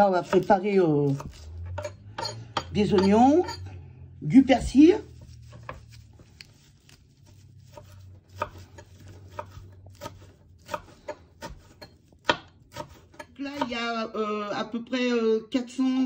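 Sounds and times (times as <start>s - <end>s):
knife chopping on cutting board: 0.0s - 3.6s, 7.3s - 13.7s.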